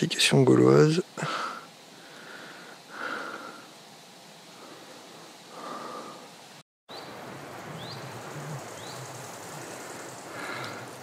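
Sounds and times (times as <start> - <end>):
steady wind hiss: 0.0 - 11.0
bird chirping: 6.9 - 10.8.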